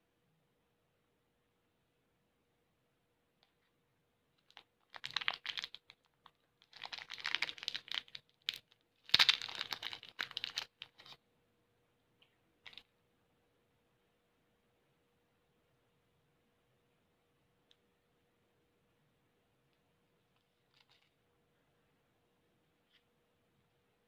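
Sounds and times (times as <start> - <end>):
plastic wrapper crinkling: 4.4 - 11.2.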